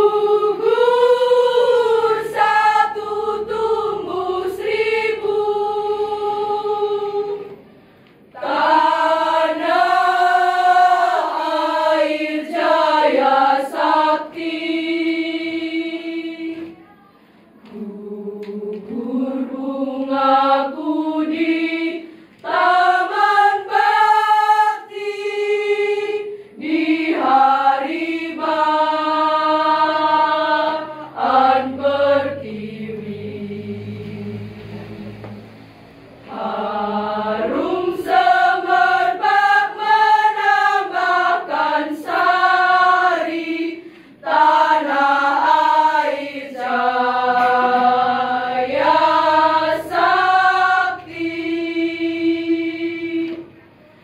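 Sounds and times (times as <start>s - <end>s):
women's choir singing: 0.0s - 54.0s
short breaths: 7.6s - 8.2s, 17.0s - 17.6s, 22.0s - 22.4s, 43.8s - 44.2s.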